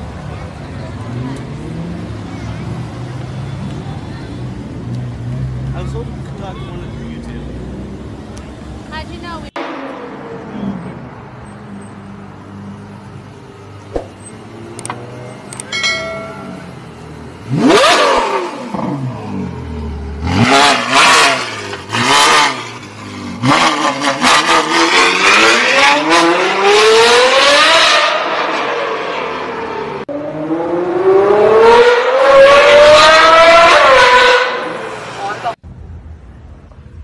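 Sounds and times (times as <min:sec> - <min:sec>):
sports car engine revving: 0:16.2 - 0:29.0
sports car accelerating: 0:16.4 - 0:35.3.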